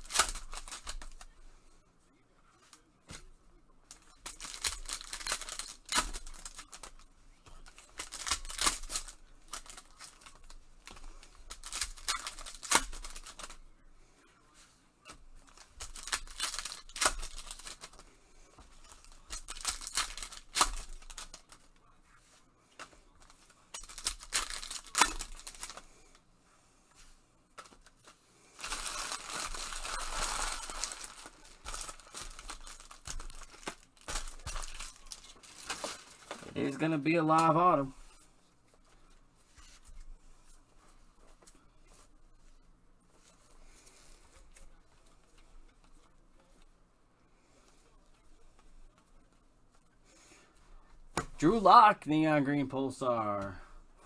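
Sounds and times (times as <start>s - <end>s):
card wrappers tearing and crinkling: 0.0s - 1.4s, 3.9s - 13.6s, 15.4s - 18.0s, 18.8s - 21.7s, 23.2s - 26.1s, 27.6s - 37.9s.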